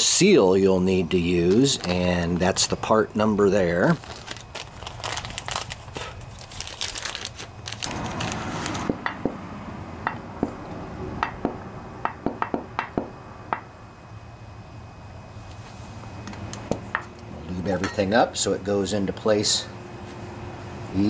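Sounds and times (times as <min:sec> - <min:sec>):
plastic crinkling and rustling: 0:03.6 - 0:09.0.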